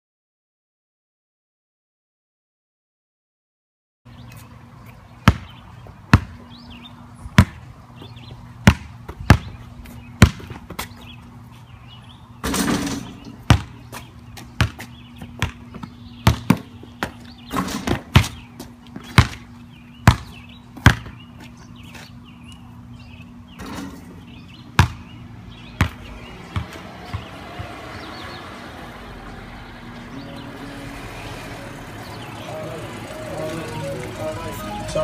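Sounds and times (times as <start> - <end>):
basketball bouncing on pavement: 4.3 - 11.4, 12.4 - 22.2, 23.5 - 28.9
longer noise: 30.0 - 35.0.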